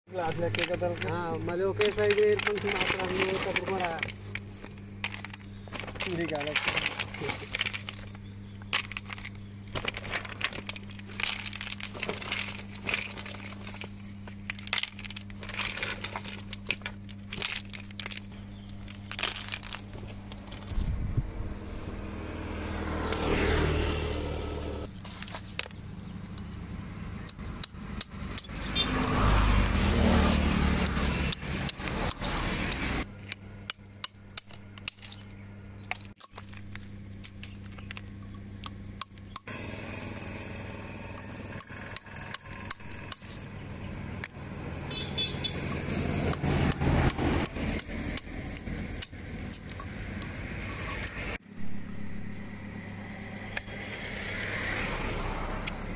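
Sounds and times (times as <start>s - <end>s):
vehicles passing: 0.1s - 55.9s
shells cracking with a sickle: 0.2s - 20.8s, 27.2s - 39.6s, 45.2s - 51.4s.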